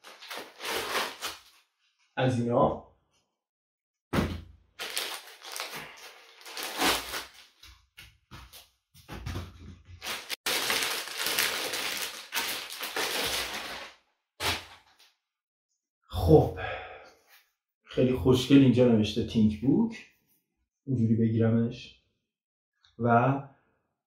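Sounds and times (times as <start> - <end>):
foam packing pieces handled: 0.0 - 1.6, 4.8 - 7.7, 10.0 - 15.0
plastic sleeve crinkling: 0.0 - 1.6, 4.8 - 7.7, 10.0 - 15.0.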